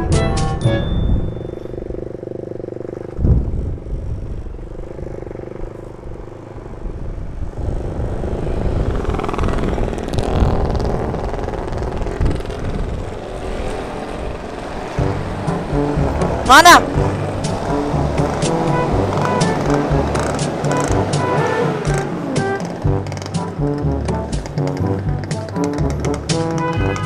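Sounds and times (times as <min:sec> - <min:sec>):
motorcycle engine running: 0:00.0 - 0:27.0
wind rushing over microphone: 0:03.0 - 0:21.1.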